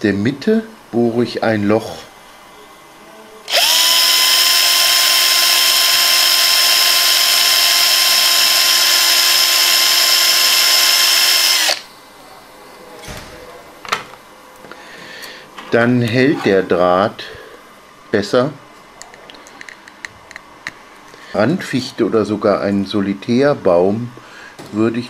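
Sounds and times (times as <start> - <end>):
electric drill boring into wood: 3.5 - 11.8.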